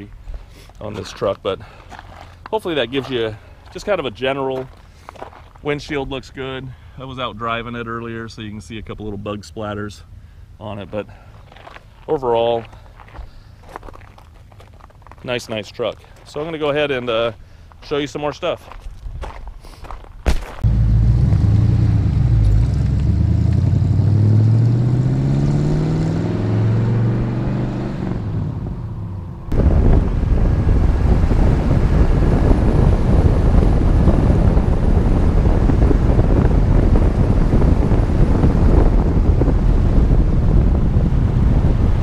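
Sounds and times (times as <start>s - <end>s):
truck engine accelerating: 20.6s - 41.9s
road roar: 20.6s - 42.0s
wind buffeting: 20.6s - 42.0s.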